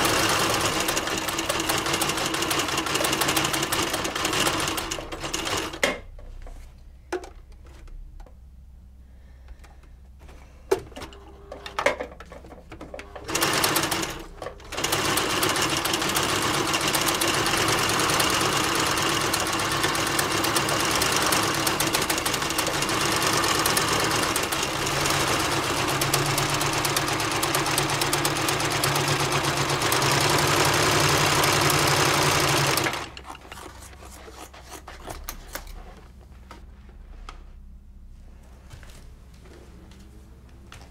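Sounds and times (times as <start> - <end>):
sewing machine stitching: 0.0 - 5.9, 13.0 - 34.2.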